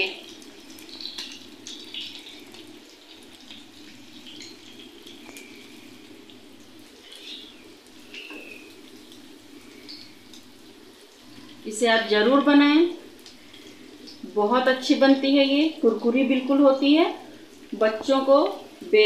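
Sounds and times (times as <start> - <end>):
patties sizzling in oil: 0.0 - 19.0
oil popping: 0.3 - 11.6.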